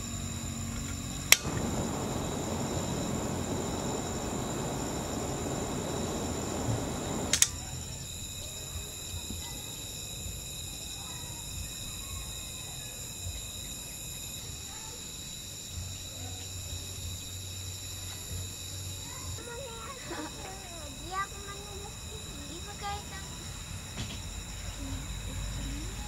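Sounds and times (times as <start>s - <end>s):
gas burner roar: 0.0s - 10.4s
crickets chirring: 0.0s - 26.0s
gas burner click: 0.9s - 7.6s.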